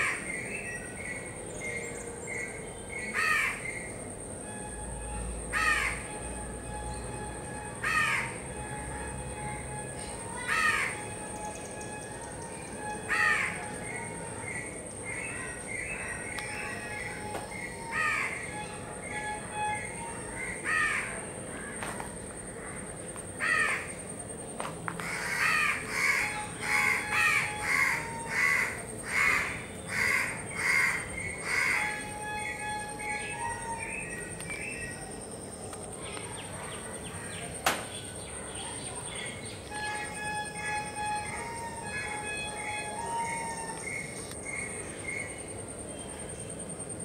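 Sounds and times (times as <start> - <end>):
high-pitched whine: 0.0 - 37.6, 38.3 - 47.0
crow cawing: 3.2 - 3.6, 5.5 - 6.0, 7.8 - 8.4, 10.4 - 11.0, 13.1 - 13.7, 17.9 - 18.5, 20.4 - 21.9, 23.4 - 24.0, 25.0 - 32.0.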